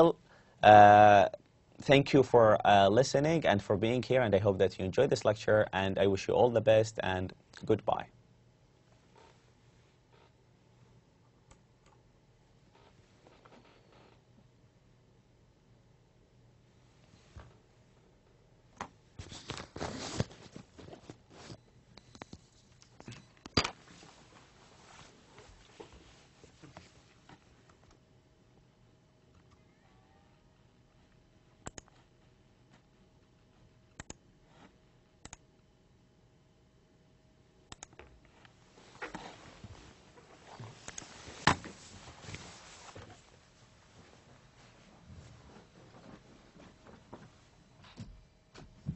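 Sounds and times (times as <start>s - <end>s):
faint room hiss: 0.0s - 48.9s
faint steady hum: 0.0s - 48.9s
rustling noise: 19.2s - 21.6s, 23.8s - 27.5s, 38.7s - 47.6s.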